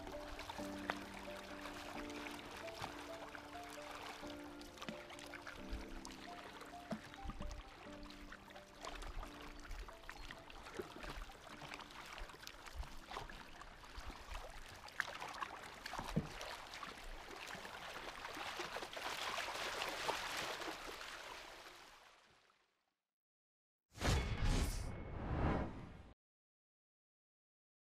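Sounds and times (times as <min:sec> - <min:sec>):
river water rushing and splashing: 0:00.0 - 0:22.0.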